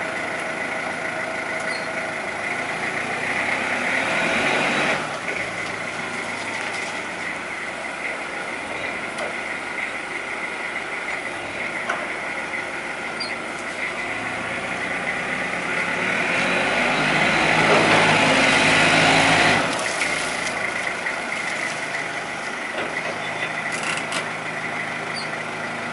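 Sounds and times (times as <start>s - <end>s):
diesel forklift engine revving: 0.0s - 25.9s.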